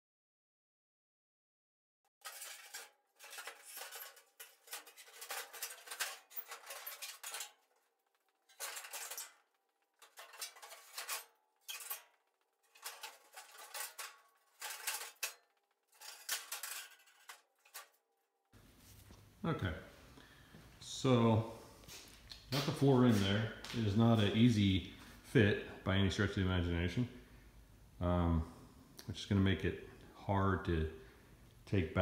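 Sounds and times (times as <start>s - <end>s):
steel panel clanking and scraping: 2.2s - 18.0s.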